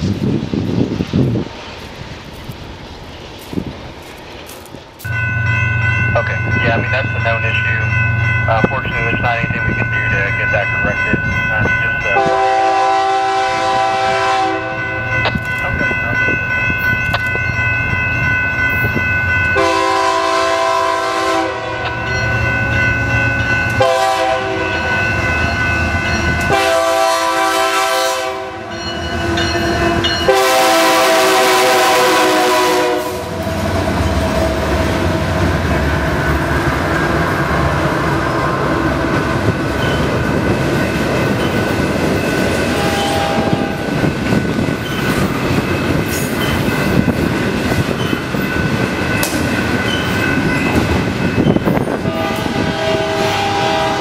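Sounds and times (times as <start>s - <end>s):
train rumbling past: 0.0s - 54.0s
locomotive air horn blasts: 12.2s - 14.9s, 19.6s - 22.0s, 23.8s - 24.9s, 26.5s - 28.8s, 30.3s - 33.4s, 42.7s - 43.9s, 52.0s - 54.0s
wheels clattering on rails: 33.4s - 52.1s.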